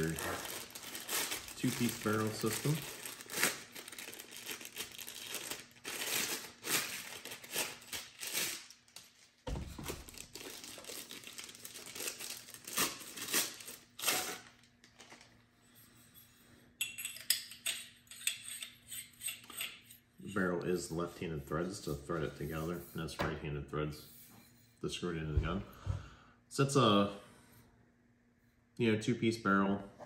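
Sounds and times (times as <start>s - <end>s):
plastic wrapping crinkling and tearing: 0.0s - 15.4s.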